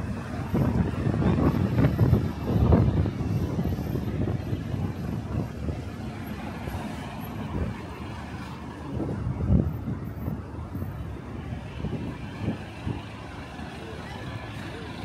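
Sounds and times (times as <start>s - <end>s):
buses and cars passing: 0.0s - 15.0s.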